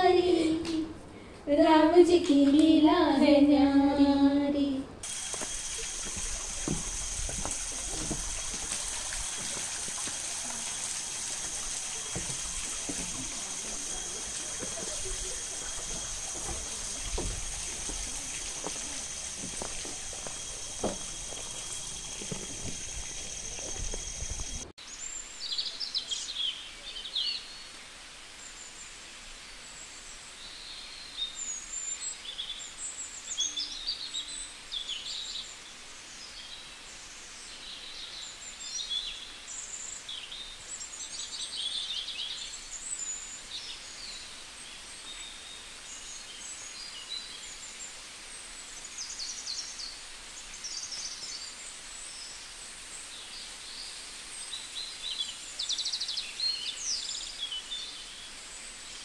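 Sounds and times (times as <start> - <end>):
hiss: 5.0 - 24.6
night insects chirring: 5.0 - 25.2
low thumps: 5.1 - 9.8.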